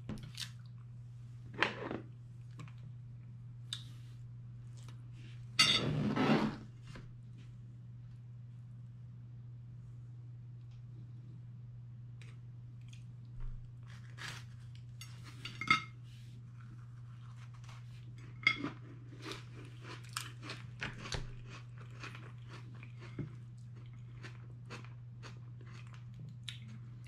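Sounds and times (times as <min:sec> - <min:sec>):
low hum: 0:00.1 - 0:18.5
crunchy chewing of biscuit: 0:12.2 - 0:15.5, 0:16.4 - 0:27.0.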